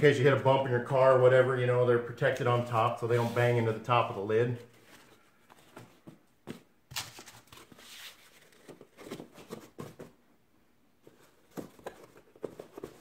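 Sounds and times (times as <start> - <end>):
foam scraping and brushing: 3.0 - 3.7.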